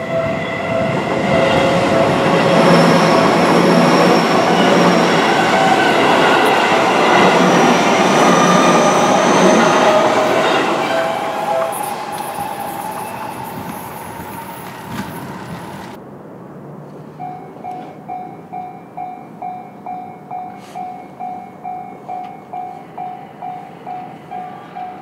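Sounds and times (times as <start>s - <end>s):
level crossing warning bell: 0.0s - 16.0s, 17.2s - 25.0s
electric train passing: 0.0s - 25.0s.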